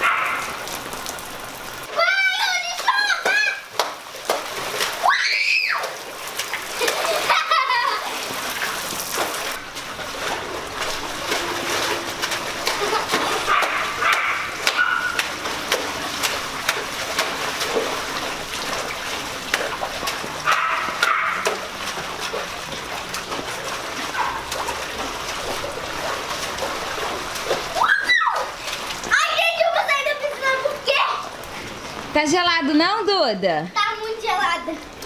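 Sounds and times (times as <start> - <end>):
rain hiss: 0.0 - 14.6
water splashing in a pool: 0.0 - 35.0
child crying out: 5.0 - 5.9, 27.8 - 28.6.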